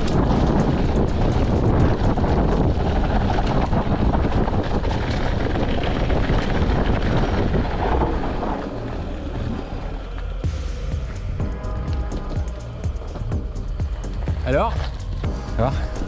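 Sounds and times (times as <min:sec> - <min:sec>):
bike clicks and rattles: 0:00.0 - 0:10.5, 0:11.1 - 0:16.0
wind buffeting microphone: 0:00.0 - 0:16.0.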